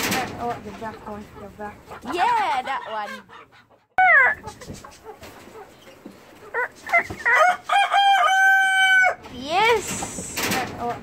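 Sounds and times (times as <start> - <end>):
rooster crowing: 7.3 - 9.2.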